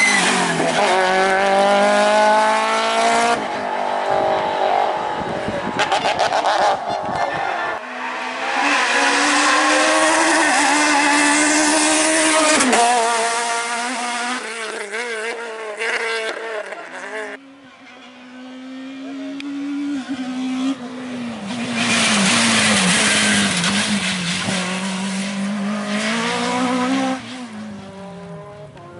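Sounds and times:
rally car engines revving: 0:00.0 - 0:28.9.

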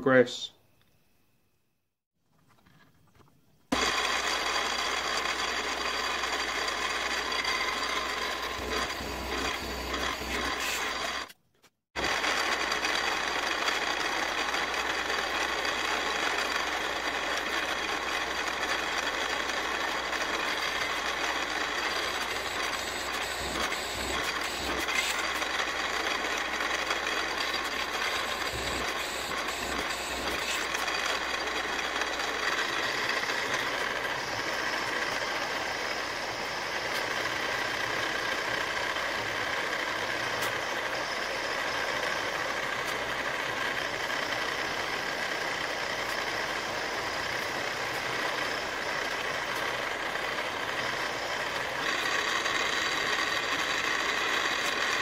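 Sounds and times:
drill cutting cast iron: 0:03.7 - 0:11.4, 0:15.2 - 0:37.1
milling machine motor whine: 0:03.7 - 0:11.4, 0:12.0 - 0:55.0.

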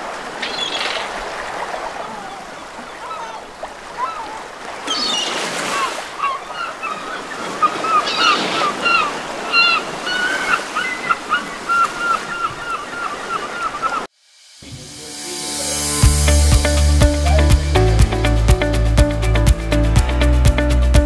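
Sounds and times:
sea waves washing on shore: 0:00.0 - 0:14.1
birds calling: 0:00.1 - 0:14.1.

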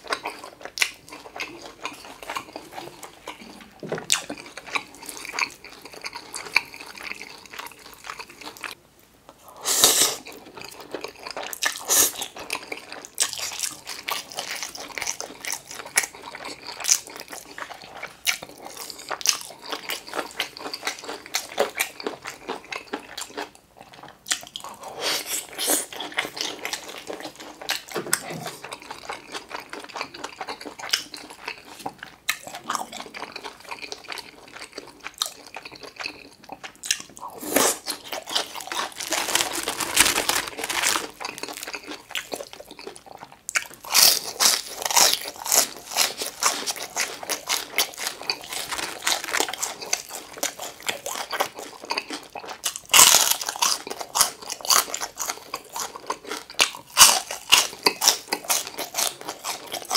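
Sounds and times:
crunching bites of crispy food: 0:28.8 - 0:59.9
moist chewing: 0:35.0 - 0:59.9.

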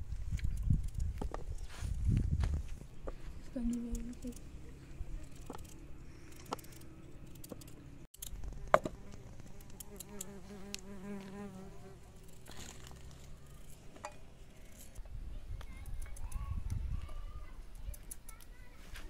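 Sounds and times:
fly buzzing: 0:08.4 - 0:12.5.

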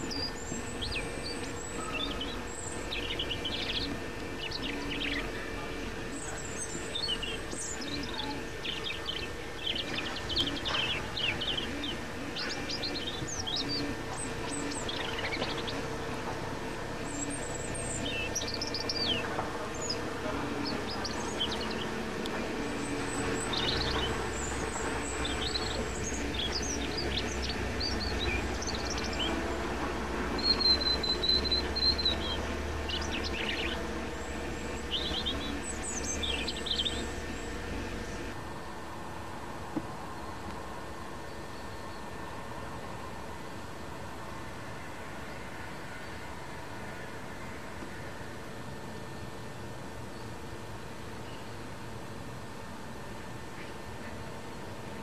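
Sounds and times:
robin singing: 0:00.0 - 0:38.4
steady low hum: 0:00.0 - 0:55.0.

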